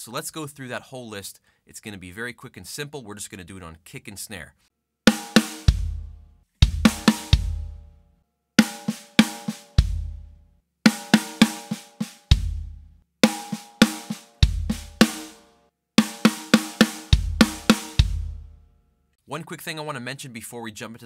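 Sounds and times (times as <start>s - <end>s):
snare drum strokes: 5.1s - 5.8s, 6.6s - 7.5s, 8.6s - 10.0s, 10.9s - 12.5s, 13.2s - 15.4s, 16.0s - 18.4s
bass drum kicks: 5.7s - 7.8s, 9.8s - 10.3s, 12.3s - 12.9s, 14.4s - 15.2s, 17.1s - 18.5s.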